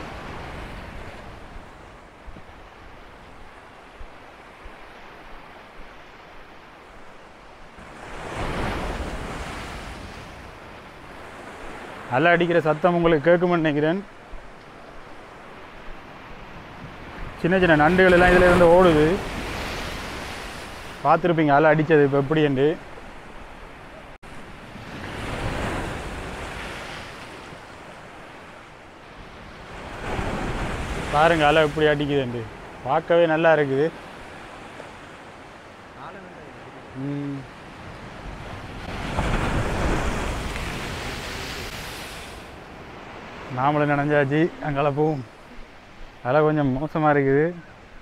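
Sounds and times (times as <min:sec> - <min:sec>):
waves breaking on rocky shore: 0:00.0 - 0:48.0
sea waves washing against rocks: 0:38.2 - 0:46.3.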